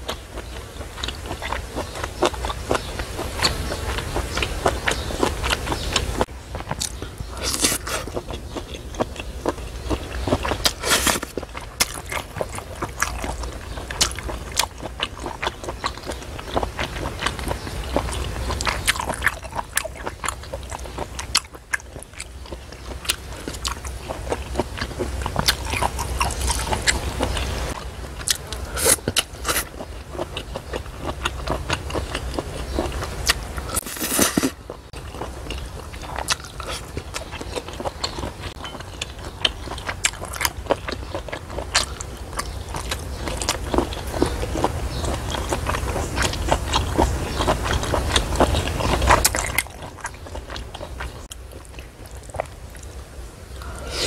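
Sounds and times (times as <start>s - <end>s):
chewing and biting: 0.0s - 52.9s
slurping noodles: 10.7s - 11.3s, 33.7s - 34.6s, 53.6s - 54.0s.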